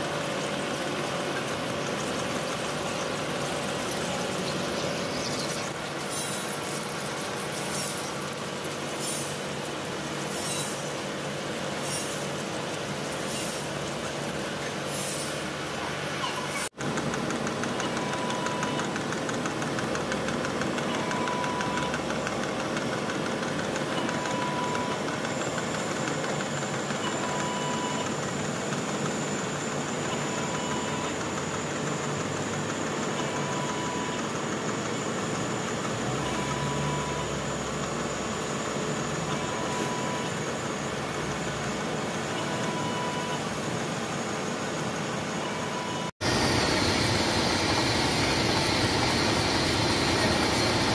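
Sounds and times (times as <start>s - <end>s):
milling machine cutting metal: 46.2s - 50.9s.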